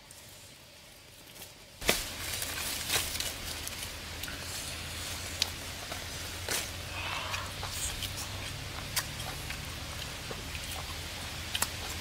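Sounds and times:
leaves rustling and crackling: 0:00.0 - 0:12.0.

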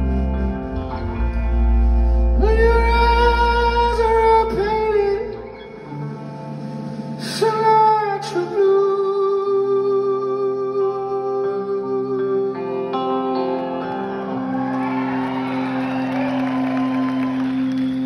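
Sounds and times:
deep bass drone: 0:00.0 - 0:05.7.

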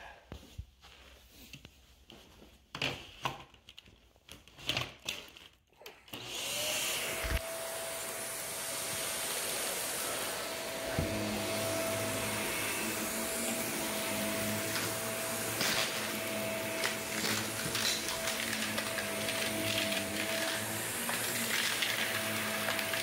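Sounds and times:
vacuum cleaner whine: 0:06.1 - 0:23.0.

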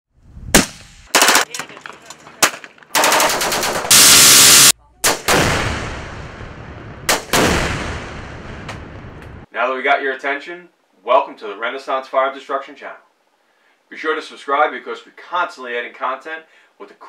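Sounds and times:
minigun firing: 0:00.5 - 0:01.6, 0:02.4 - 0:08.7
rifle shot: 0:00.5 - 0:01.6, 0:02.4 - 0:09.0
automatic gunfire bursts: 0:01.1 - 0:01.6, 0:02.9 - 0:05.5
large explosion: 0:03.9 - 0:09.5.

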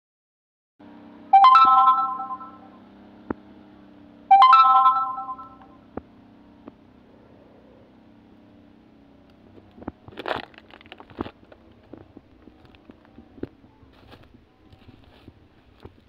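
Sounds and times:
ringing chime tones: 0:01.3 - 0:02.8, 0:04.3 - 0:05.8.

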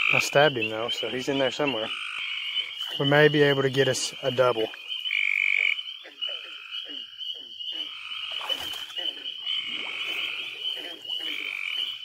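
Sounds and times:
frogs trilling chorus: 0:00.0 - 0:12.0
low falling frog calls: 0:00.0 - 0:12.0.

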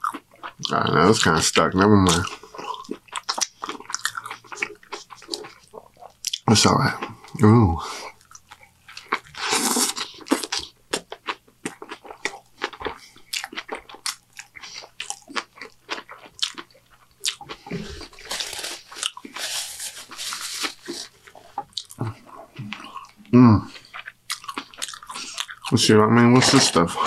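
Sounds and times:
man chewing food: 0:00.0 - 0:27.0
wet chewing clicks: 0:02.1 - 0:07.2, 0:08.1 - 0:18.1, 0:21.2 - 0:25.8
crunching: 0:08.2 - 0:22.1.

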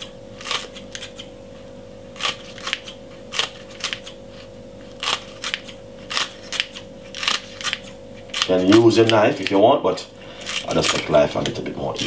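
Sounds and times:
scissors snipping stalks: 0:02.2 - 0:04.2, 0:04.9 - 0:09.6, 0:10.4 - 0:12.0.

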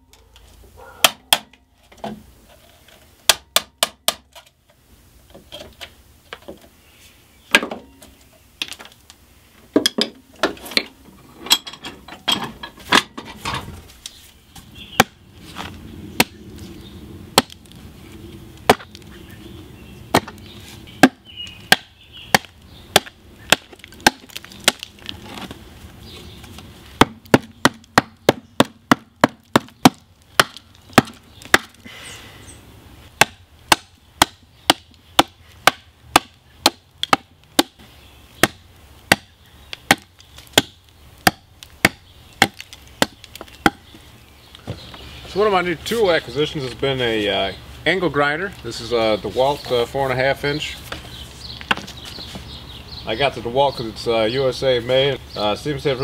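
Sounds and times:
hatchet chopping log: 0:01.0 - 0:01.6, 0:03.2 - 0:04.4, 0:15.0 - 0:15.2, 0:16.2 - 0:16.4, 0:17.4 - 0:17.7, 0:18.6 - 0:19.0, 0:20.1 - 0:20.4, 0:21.0 - 0:25.5, 0:27.0 - 0:31.8, 0:33.2 - 0:43.9.

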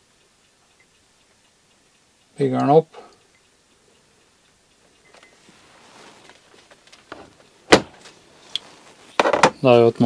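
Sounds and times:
soft rustling of tools: 0:04.9 - 0:10.0.

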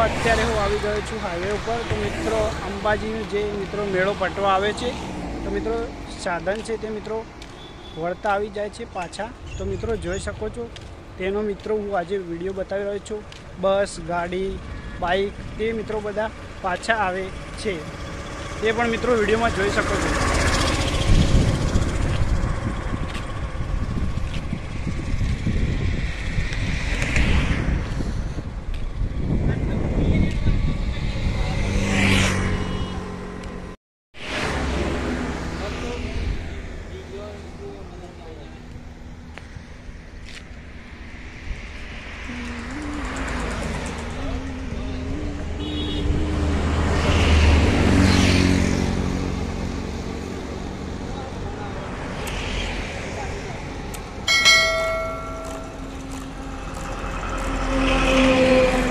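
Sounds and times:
highway traffic passing: 0:00.0 - 0:58.9
wind buffeting microphone: 0:09.3 - 0:11.2, 0:20.2 - 0:31.8.

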